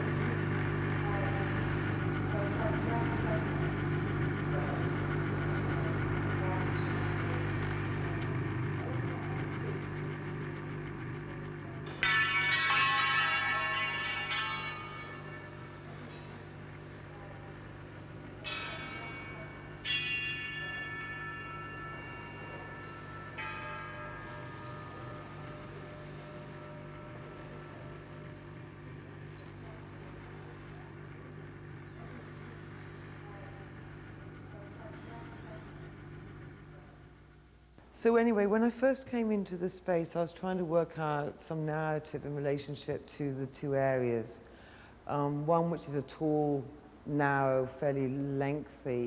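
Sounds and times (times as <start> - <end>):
low electrical hum: 0.0 - 49.0
bell-like ringing tone: 11.8 - 33.7.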